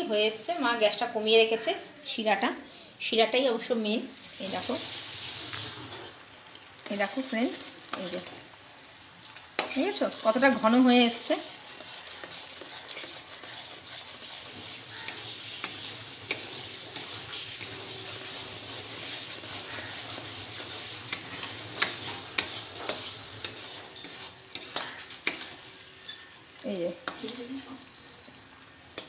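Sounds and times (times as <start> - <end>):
syrup bubbling and sizzling: 4.2 - 29.0
metal spoon scraping pan: 6.8 - 8.4, 9.6 - 26.4, 27.0 - 27.7.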